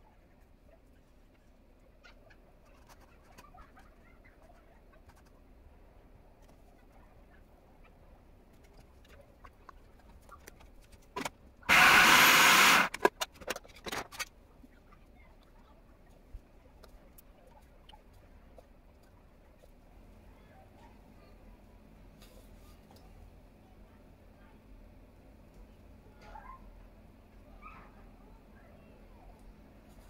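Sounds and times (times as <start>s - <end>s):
faint small clicks and scrapes: 2.2s - 5.5s, 8.5s - 11.5s, 12.9s - 20.0s
food processor chopping: 11.7s - 13.1s.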